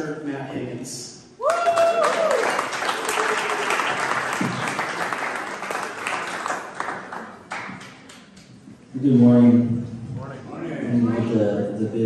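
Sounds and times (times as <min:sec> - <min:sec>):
congregation applauding: 0:01.4 - 0:08.4.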